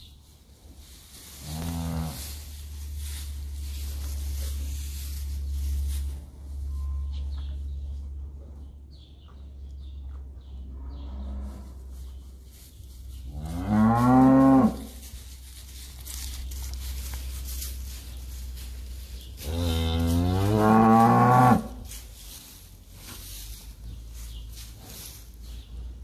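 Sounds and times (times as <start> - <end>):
cattle mooing: 19.4 - 21.7.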